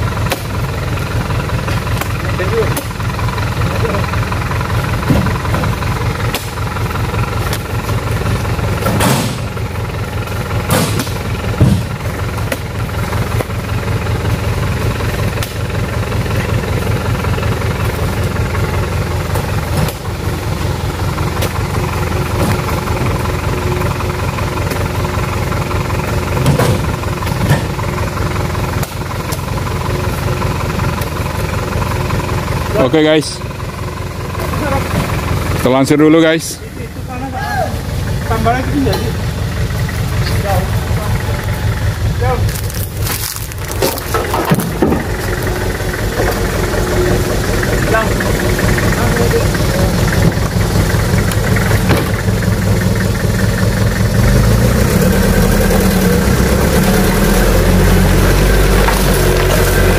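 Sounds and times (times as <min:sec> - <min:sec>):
truck engine idling: 0:00.0 - 0:59.9
thuds of fruit into truck bed: 0:05.0 - 0:05.7, 0:08.8 - 0:09.6, 0:10.6 - 0:12.7, 0:26.4 - 0:27.8, 0:43.1 - 0:45.2, 0:51.8 - 0:52.2.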